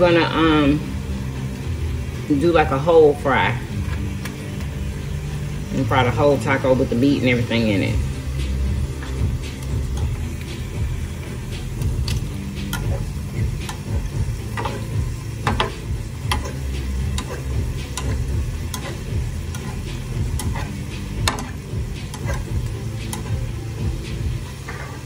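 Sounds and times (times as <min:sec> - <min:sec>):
low rumble: 0:00.0 - 0:24.4
tortillas frying in oil: 0:07.3 - 0:25.0
metal fork clicking against pan: 0:12.0 - 0:12.9, 0:13.6 - 0:13.9, 0:14.5 - 0:23.4.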